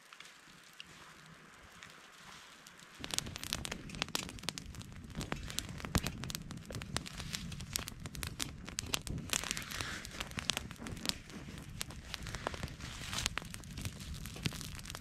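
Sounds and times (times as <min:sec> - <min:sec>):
campfire crackling and popping: 0:00.0 - 0:15.0
crinkling and rustling: 0:00.0 - 0:15.0.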